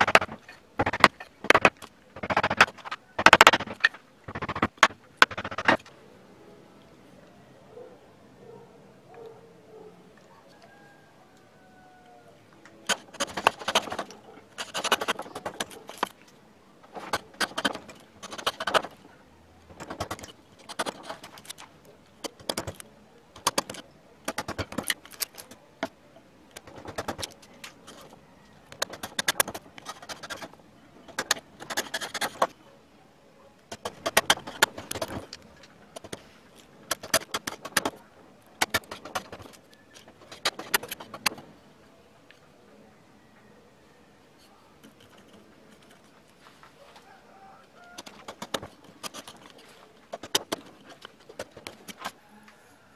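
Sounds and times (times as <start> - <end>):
blade slicing through wood: 0.0 - 5.8, 12.9 - 16.2, 16.9 - 19.0, 28.8 - 32.5, 33.7 - 35.3, 38.6 - 39.6.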